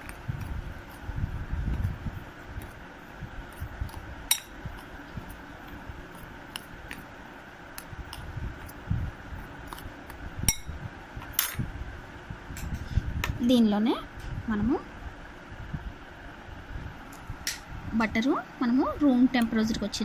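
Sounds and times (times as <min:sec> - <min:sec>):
flour stirred in a bowl: 0:00.0 - 0:10.2.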